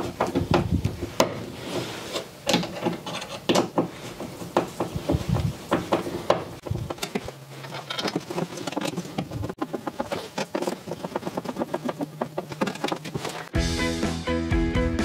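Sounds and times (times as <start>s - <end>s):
screw clicking and scraping: 2.1s - 4.6s, 6.6s - 13.5s.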